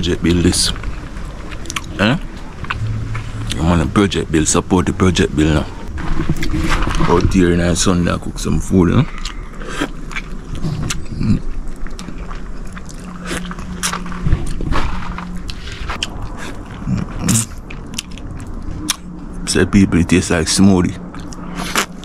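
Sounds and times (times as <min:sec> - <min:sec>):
wet eating mouth noises: 0:09.0 - 0:14.6, 0:21.2 - 0:22.0.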